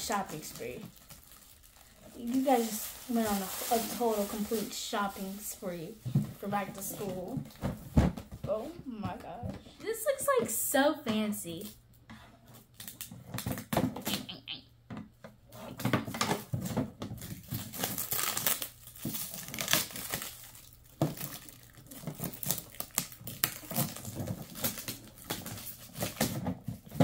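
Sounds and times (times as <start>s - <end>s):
plastic wrap crinkling and tearing: 0.0s - 7.9s, 12.5s - 14.4s, 15.6s - 27.0s.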